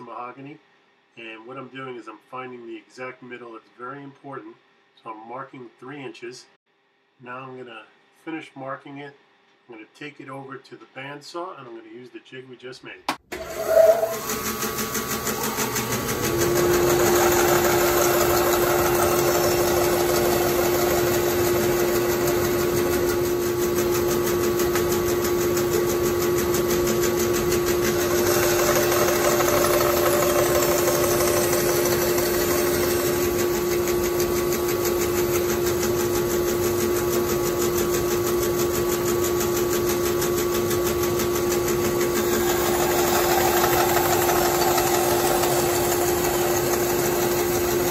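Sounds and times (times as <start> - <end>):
bandsaw cutting wood: 13.3 - 35.7, 41.7 - 47.9.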